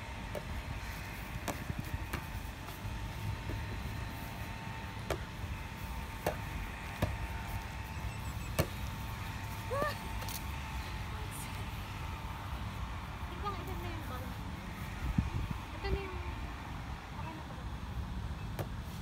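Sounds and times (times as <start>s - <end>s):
volleyball slapping off forearms: 5.0s - 5.4s, 6.1s - 7.3s.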